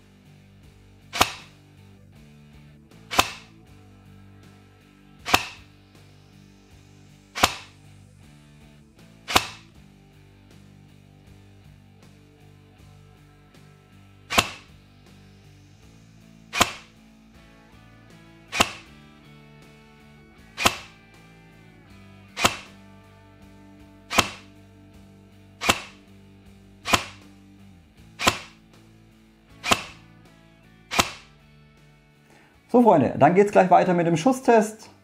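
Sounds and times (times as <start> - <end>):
quiet music: 0.0 - 35.0
airsoft rifle shots: 1.1 - 1.6, 3.1 - 3.5, 5.2 - 5.7, 7.4 - 7.8, 9.3 - 9.7, 14.3 - 14.7, 16.5 - 16.9, 18.5 - 18.9, 20.5 - 21.0, 22.4 - 22.8, 24.1 - 24.5, 25.6 - 26.0, 26.8 - 27.3, 28.2 - 28.6, 29.6 - 30.0, 30.9 - 31.3.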